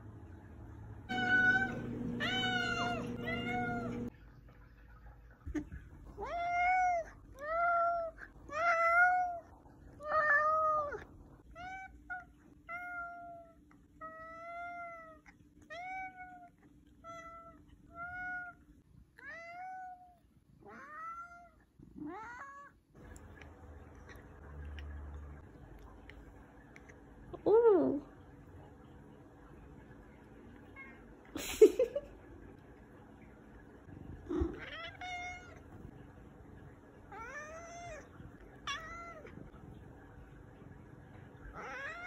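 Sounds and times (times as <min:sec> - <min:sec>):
cat meowing: 0:01.1 - 0:04.1, 0:34.3 - 0:35.7, 0:41.6 - 0:42.0.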